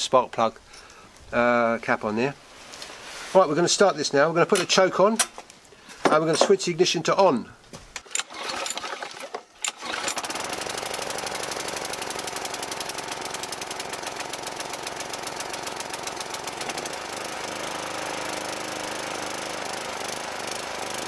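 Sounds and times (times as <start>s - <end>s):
small petrol engine running: 8.0s - 21.0s.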